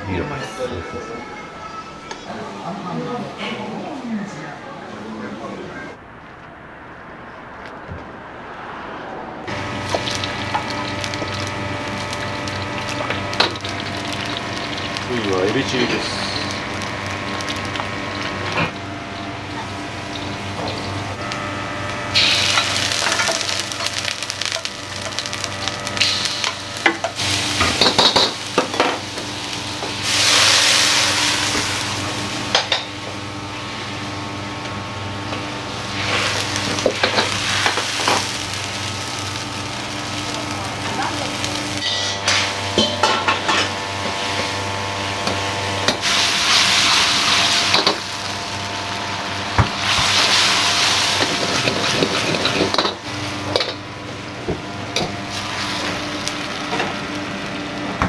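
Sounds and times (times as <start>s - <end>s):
food sizzling in oil: 9.5s - 58.0s
kitchen hum: 9.5s - 58.0s
metal ladle scraping wok: 41.8s - 43.8s.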